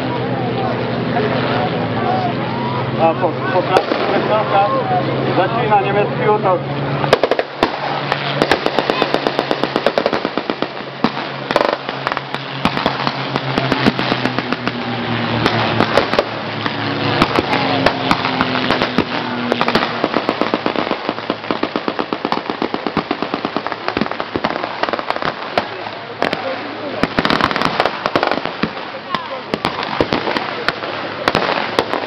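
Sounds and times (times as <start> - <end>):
steady low drone: 0.0 - 22.2
automatic gunfire bursts: 7.1 - 14.8.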